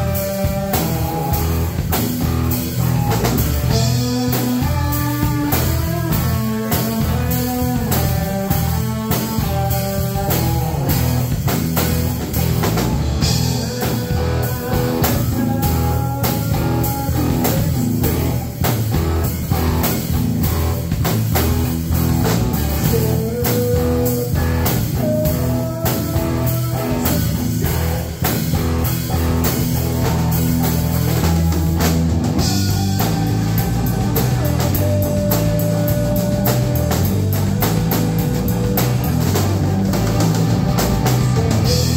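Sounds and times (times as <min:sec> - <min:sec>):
bass guitar: 0:00.0 - 0:41.9
drum kit: 0:00.0 - 0:41.9
electric guitar: 0:00.0 - 0:41.9.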